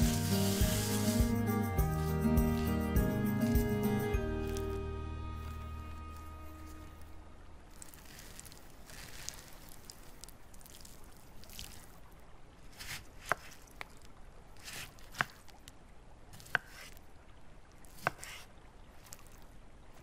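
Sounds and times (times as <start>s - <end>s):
knife slicing fruit: 12.8s - 13.6s, 14.6s - 15.5s, 16.4s - 17.0s, 17.9s - 18.5s.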